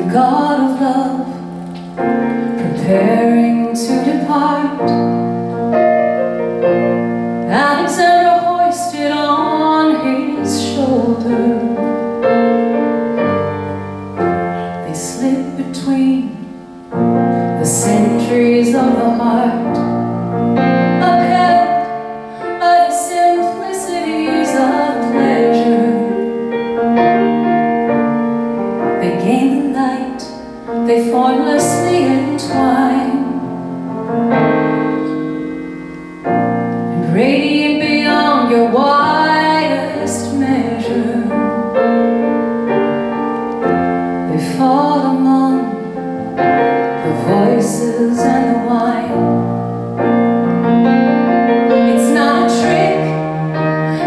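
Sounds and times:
woman singing: 0.0 - 1.6, 2.6 - 5.2, 7.5 - 12.1, 14.7 - 16.6, 17.6 - 20.0, 21.0 - 26.5, 29.0 - 33.6, 36.9 - 42.1, 44.2 - 46.2, 46.9 - 49.5, 51.7 - 54.0
piano accompaniment: 0.0 - 54.0.

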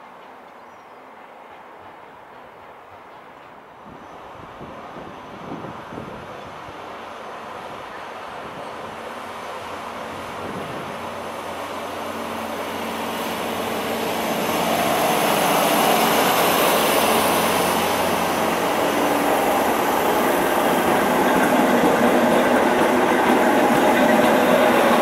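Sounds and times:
train engine and wheel noise: 0.0 - 25.0.

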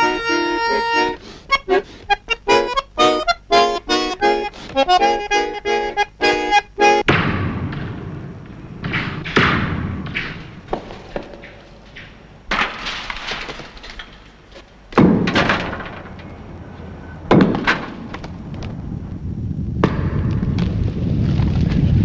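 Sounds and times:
crumbling debris clattering: 7.7 - 18.8
pickaxe striking masonry: 8.8 - 14.2, 14.9 - 15.9, 17.3 - 18.0
low rumble: 18.2 - 22.0.

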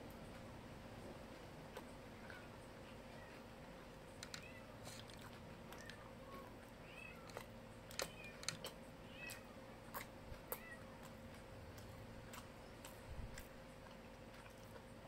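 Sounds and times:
faint steady hum: 0.0 - 15.0
eating clicks and smacks: 3.4 - 6.5, 7.2 - 15.0.

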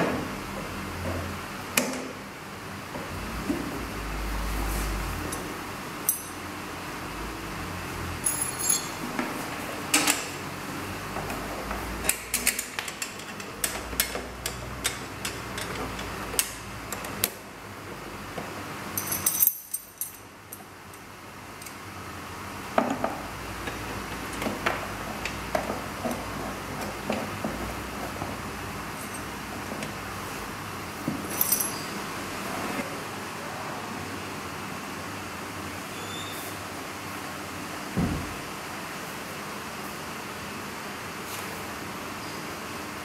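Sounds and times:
metal fittings clinking: 8.3 - 9.0.

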